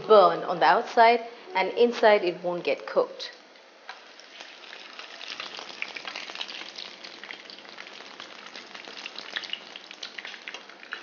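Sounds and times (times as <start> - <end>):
chicken frying in oil: 3.9 - 11.0.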